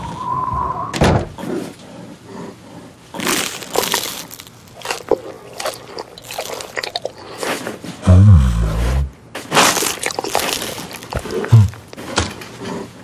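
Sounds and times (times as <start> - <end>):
bear chewing honeycomb: 1.9 - 8.0, 8.8 - 13.0.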